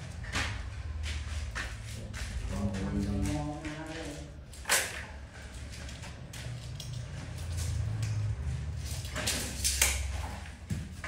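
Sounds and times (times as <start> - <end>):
tape measure clicking on tiles: 8.8 - 10.2.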